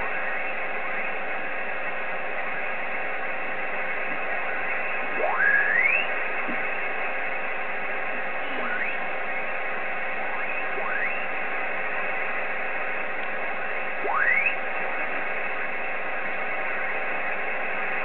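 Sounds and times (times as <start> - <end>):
radio band noise hiss: 0.0 - 18.0
rising radio whistles: 4.3 - 12.4, 13.6 - 14.7.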